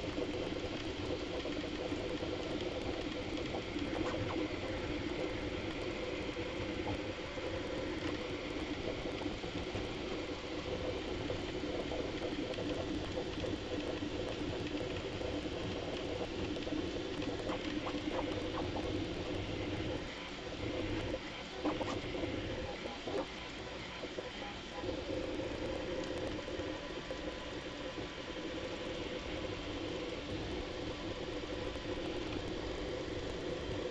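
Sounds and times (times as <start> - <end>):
printer motors chattering whir: 16.4 - 25.2.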